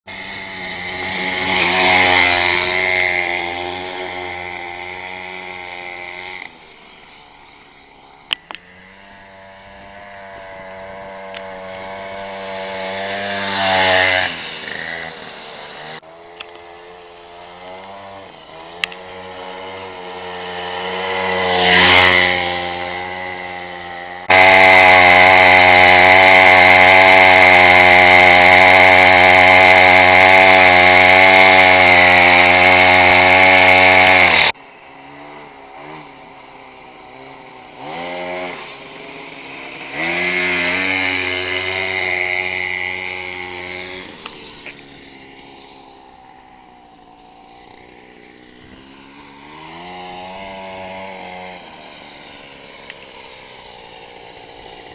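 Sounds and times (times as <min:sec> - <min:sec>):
dirt bike engines riding past: 0:00.1 - 0:54.9
steady engine note: 0:18.5 - 0:35.0.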